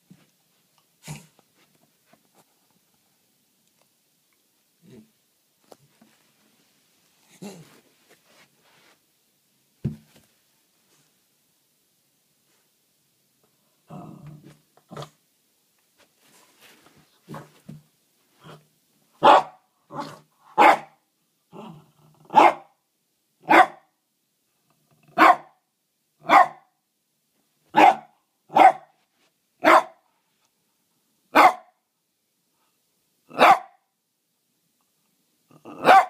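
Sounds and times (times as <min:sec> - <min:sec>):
dog barking: 0:19.2 - 0:21.0, 0:22.3 - 0:22.7, 0:23.4 - 0:23.9, 0:25.2 - 0:25.6, 0:26.2 - 0:26.7, 0:27.7 - 0:28.9, 0:29.6 - 0:30.0, 0:31.3 - 0:31.8, 0:33.3 - 0:33.8, 0:35.8 - 0:36.0.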